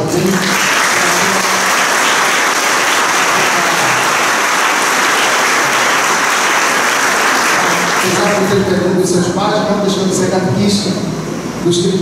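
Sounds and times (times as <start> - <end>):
congregation applauding: 0.0 - 8.7.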